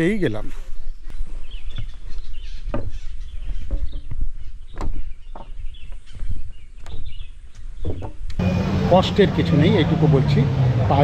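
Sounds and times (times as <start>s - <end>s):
bird calls: 0.0s - 8.8s
footsteps on wooden planks: 0.5s - 8.4s.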